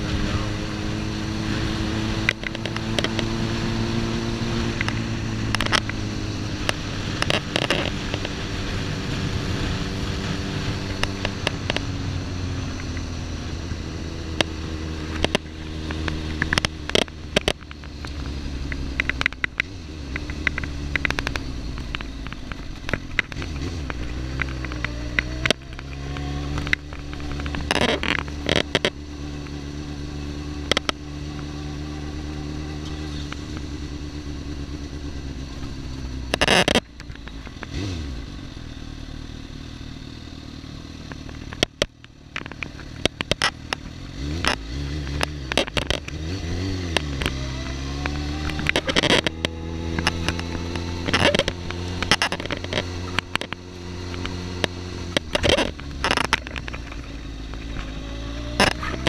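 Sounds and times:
motorcycle engine running: 0.0s - 59.0s
audio clicks and crackles: 2.2s - 3.4s, 4.7s - 8.4s, 10.7s - 11.9s, 12.6s - 13.2s, 14.3s - 32.0s, 32.8s - 34.2s, 35.4s - 37.9s, 40.8s - 59.0s.

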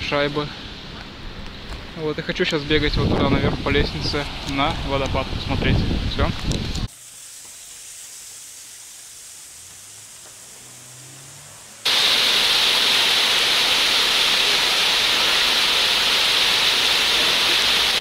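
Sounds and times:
faint hiss: 6.8s - 18.0s
waterfall rushing: 8.9s - 18.0s
faint rising hum: 9.2s - 11.9s.

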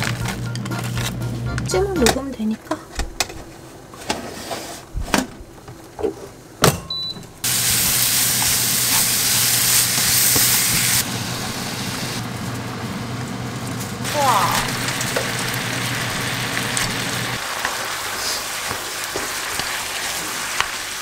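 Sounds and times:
food sizzling on a grill: 7.4s - 21.0s.

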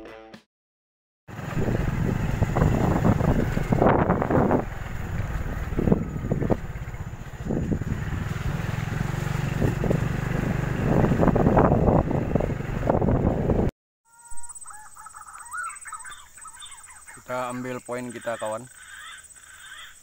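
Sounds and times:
motorbike engine running: 1.3s - 13.7s
wind buffeting microphone: 1.3s - 13.7s
birds calling: 14.3s - 20.0s.

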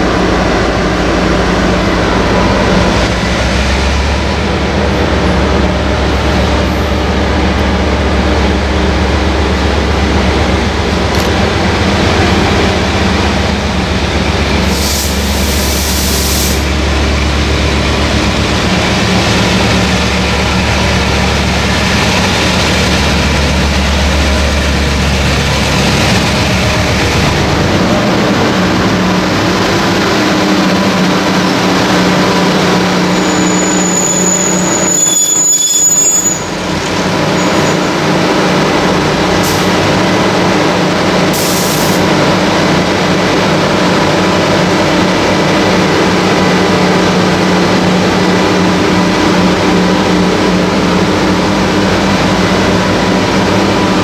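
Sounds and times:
diesel locomotive engine working hard: 0.0s - 54.0s
train coaches rolling on rails: 0.0s - 54.0s
thin high squeal: 33.2s - 36.5s.

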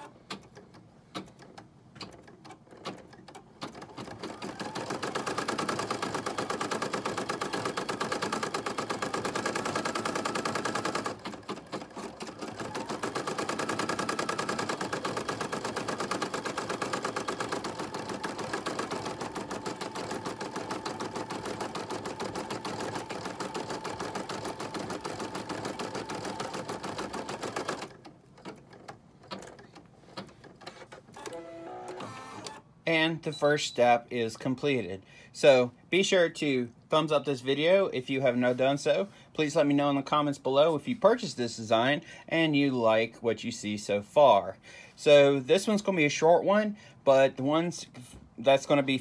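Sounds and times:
embroidery machine stitching: 0.0s - 32.6s.

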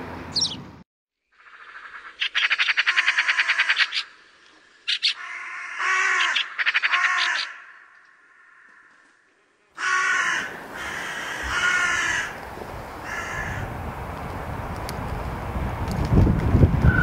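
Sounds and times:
crow cawing: 2.5s - 4.1s, 4.9s - 12.4s, 13.0s - 13.8s.

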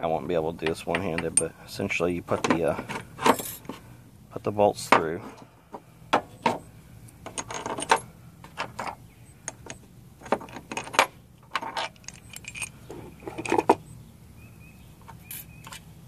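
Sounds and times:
metallic clinks of steel bolts: 7.2s - 13.7s.

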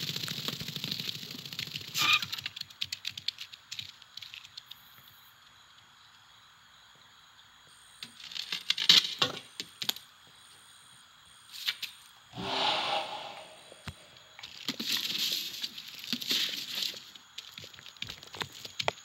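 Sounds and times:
small clicks and rattles: 0.0s - 5.1s.

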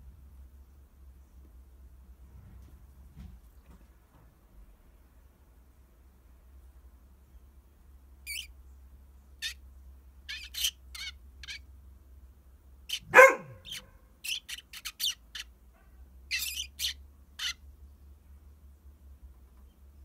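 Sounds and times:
sparrow chirping: 8.2s - 8.6s, 9.3s - 11.7s, 12.8s - 15.5s, 16.3s - 17.9s
dog barking: 12.9s - 14.0s, 15.7s - 16.0s.

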